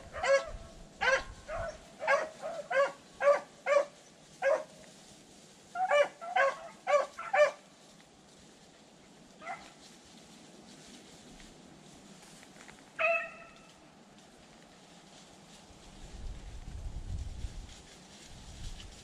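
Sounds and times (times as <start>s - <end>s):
dog barking: 0.0s - 4.7s, 5.8s - 7.6s, 9.4s - 9.7s, 13.0s - 13.6s.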